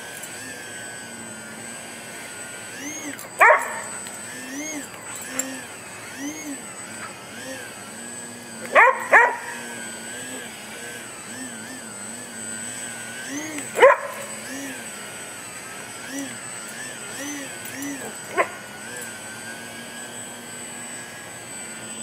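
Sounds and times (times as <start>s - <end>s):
electric motor and propeller whining: 0.0s - 22.0s
dog barking: 3.4s - 3.9s, 8.7s - 9.6s, 13.8s - 14.2s, 18.3s - 18.6s.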